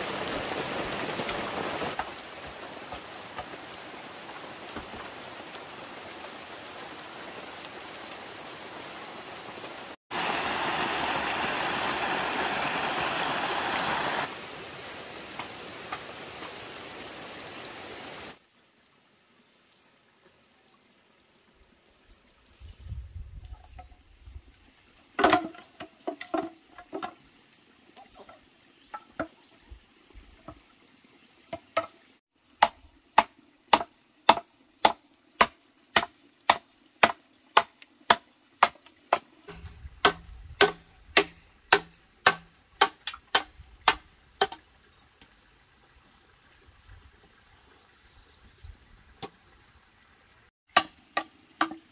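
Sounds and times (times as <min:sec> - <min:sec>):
bamboo poles clattering: 0:25.2 - 0:27.2, 0:28.0 - 0:29.4, 0:35.4 - 0:44.6, 0:50.7 - 0:51.9
machete chopping bamboo: 0:32.6 - 0:44.6, 0:50.7 - 0:51.9.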